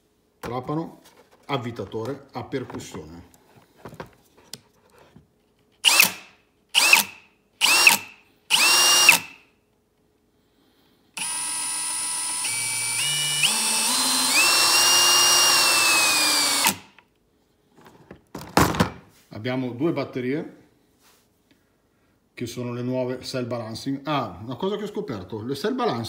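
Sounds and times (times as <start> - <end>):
cordless drill motor whining: 6.8 - 9.4, 11.2 - 16.9.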